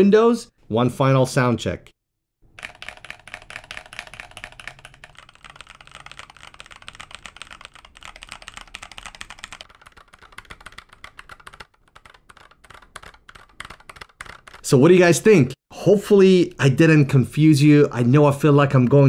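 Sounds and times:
mechanical keyboard typing: 2.6 - 14.7.

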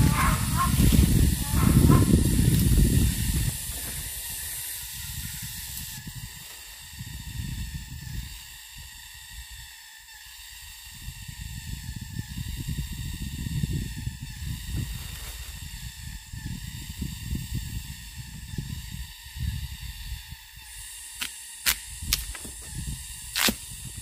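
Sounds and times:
low rumbling noise: 0.0 - 6.4
insects hissing: 0.0 - 24.0.

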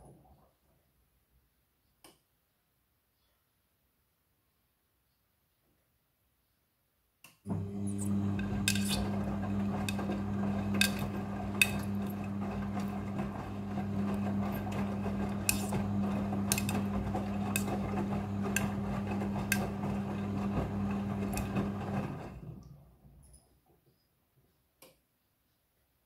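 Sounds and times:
washing machine tumbling: 7.5 - 23.2.

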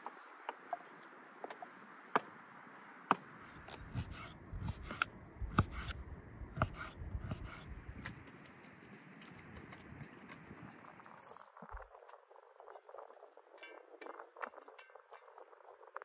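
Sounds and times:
knife chopping on wooden board: 3.1 - 6.0, 6.6 - 8.1.

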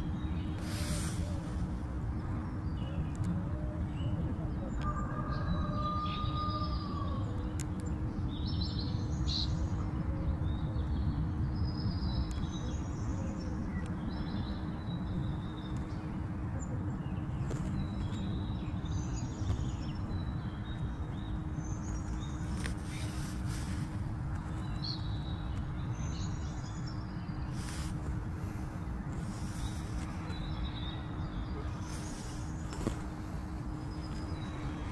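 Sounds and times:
low background rumble: 0.0 - 34.9.

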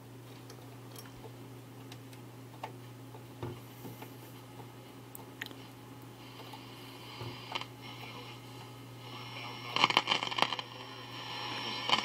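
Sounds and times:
radio tuning hum: 2.3 - 12.0
radio static crackling: 5.6 - 12.0.

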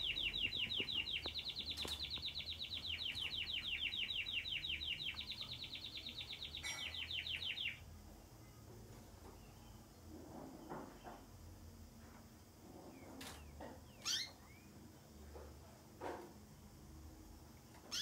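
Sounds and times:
canary singing a trill: 0.0 - 7.8, 12.9 - 14.8, 17.8 - 18.0.

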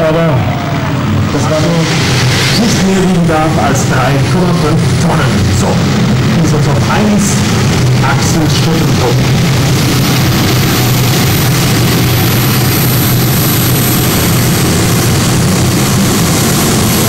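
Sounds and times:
turbine engine whine: 0.0 - 17.0.

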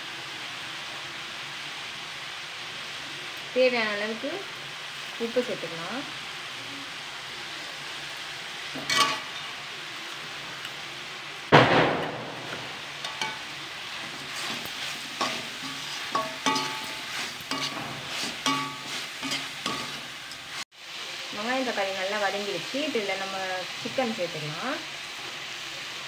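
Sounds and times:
onions sizzling in hot oil: 0.0 - 26.0
spoon scraping metal pan: 8.8 - 9.4, 13.0 - 20.5.

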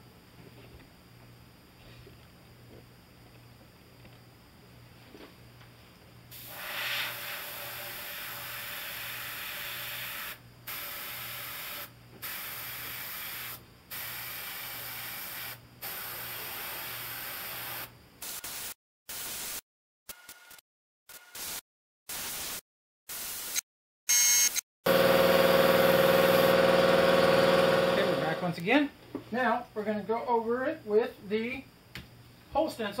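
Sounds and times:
airbrush spraying hiss: 6.3 - 9.3, 10.0 - 19.6.

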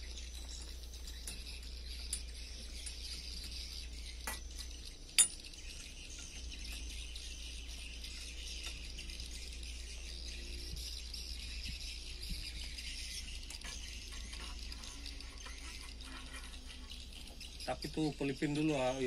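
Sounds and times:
metal tools clinking: 4.2 - 5.6.

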